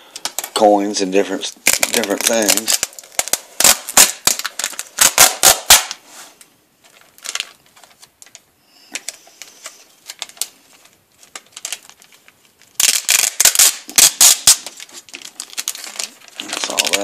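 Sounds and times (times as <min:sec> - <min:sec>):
plastic wrap crackling: 0:00.1 - 0:06.0, 0:06.8 - 0:17.0.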